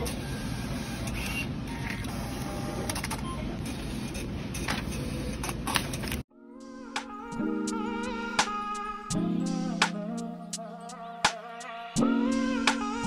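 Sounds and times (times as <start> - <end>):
soft music: 6.3 - 13.0.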